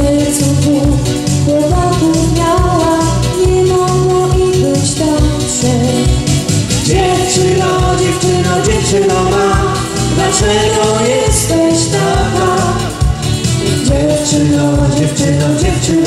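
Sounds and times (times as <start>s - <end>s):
electric guitar: 0.0s - 16.0s
keyboard playing: 0.0s - 16.0s
drum beat: 6.0s - 16.0s.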